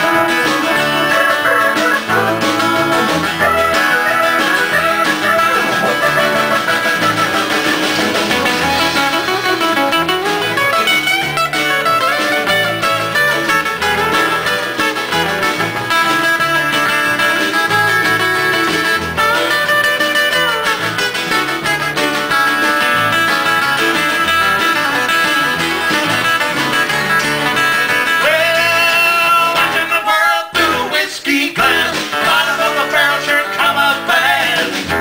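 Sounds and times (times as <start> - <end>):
person singing: 0.0 - 7.3, 28.2 - 34.9
country acoustic band playing: 0.0 - 35.0.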